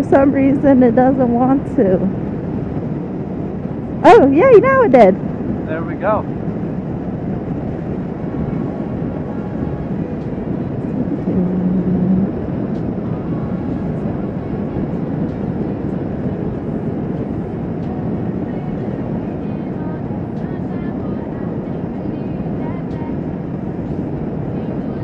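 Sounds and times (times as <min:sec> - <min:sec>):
road and wind noise: 0:00.0 - 0:25.0
motorcycle engine cruising: 0:04.1 - 0:14.0.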